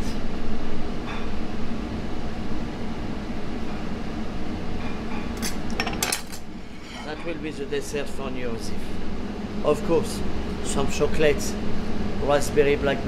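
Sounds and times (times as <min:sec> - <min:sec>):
ventilation fans humming: 0:00.0 - 0:13.0
dishes clinking: 0:04.8 - 0:07.4.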